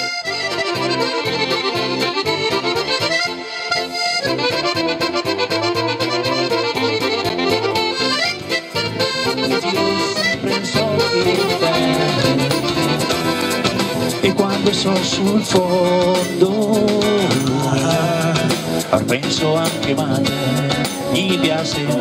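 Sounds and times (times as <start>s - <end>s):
accordion-like lead melody: 0.0s - 22.0s
steady dance beat: 0.8s - 16.4s.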